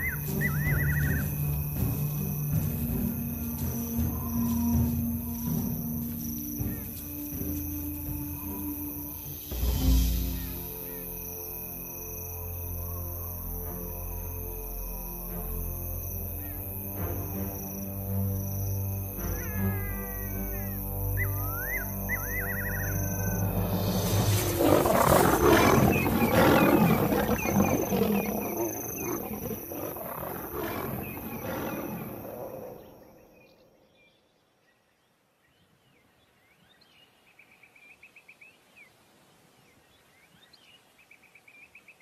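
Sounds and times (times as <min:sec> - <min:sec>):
lion roaring: 0:23.4 - 0:33.2.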